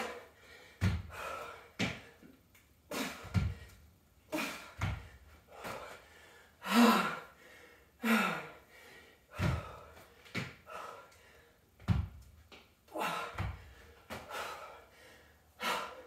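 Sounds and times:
dumbbells thudding on rubber mat: 0:00.8 - 0:02.1, 0:03.0 - 0:03.7, 0:04.4 - 0:05.9, 0:09.3 - 0:10.6, 0:11.8 - 0:12.2
woman gasping and groaning: 0:02.9 - 0:07.4.

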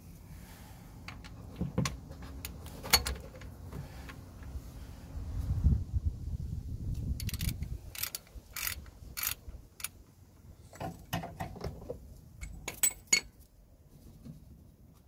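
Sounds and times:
ratchet wrench clicking: 0:07.2 - 0:10.0.

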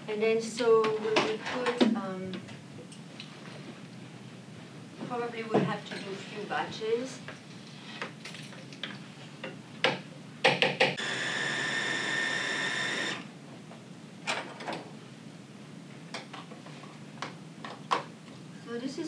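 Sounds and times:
blender motor whining: 0:11.0 - 0:13.3.

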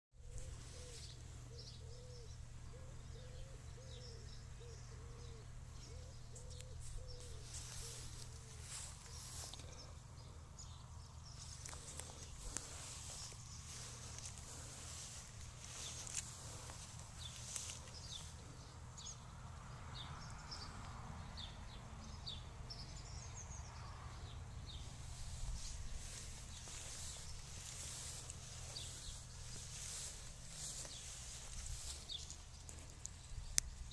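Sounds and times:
grass rustling: 0:00.2 - 0:03.6, 0:06.6 - 0:19.2, 0:24.6 - 0:33.9
low short bird calls: 0:00.2 - 0:19.2.

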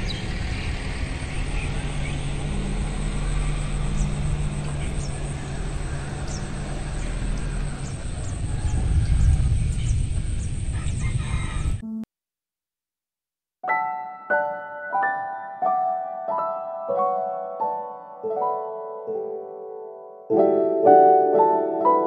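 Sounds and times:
low rumble with faint hum: 0:00.0 - 0:11.8.

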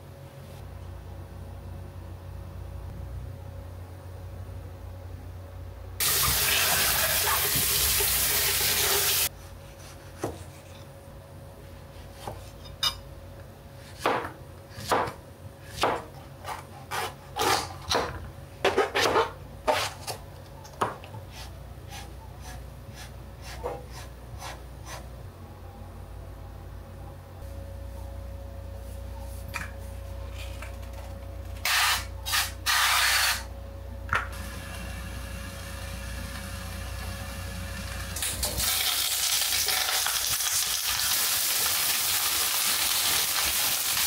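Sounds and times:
kitchen tap running: 0:06.0 - 0:09.3
knife chopping on cutting board: 0:09.8 - 0:10.6, 0:13.8 - 0:20.1.

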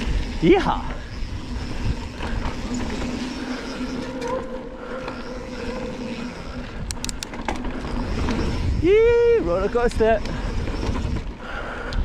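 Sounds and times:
buzzing tone: 0:00.0 - 0:09.4
bike tyres rumbling on dirt: 0:00.0 - 0:12.0.

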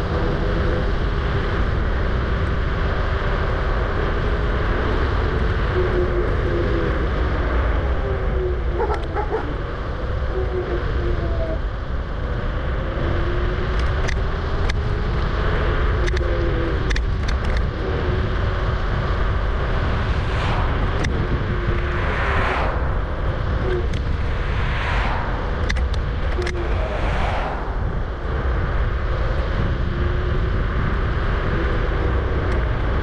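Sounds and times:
road rumble: 0:00.0 - 0:33.0
wind buffeting microphone: 0:00.0 - 0:33.0
sharp clicks from bumps: 0:13.7 - 0:14.9, 0:16.9 - 0:17.7.

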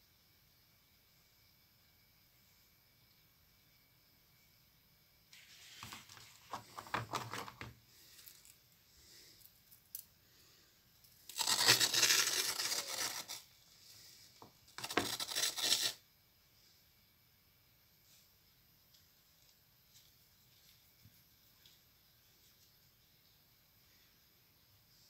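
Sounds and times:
balloon and scissors rustling: 0:11.3 - 0:13.5, 0:14.8 - 0:16.0.

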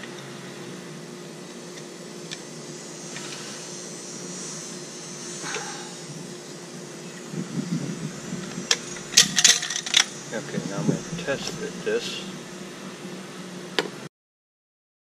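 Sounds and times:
machine hum: 0:00.0 - 0:14.1.

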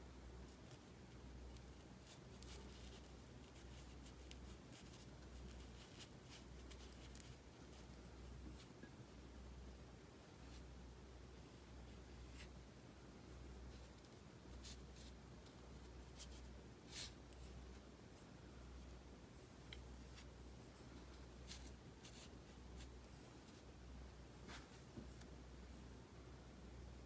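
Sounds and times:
faint low hum: 0:00.0 - 0:27.0
ink brush stroking across paper: 0:13.7 - 0:18.3, 0:19.4 - 0:23.7.

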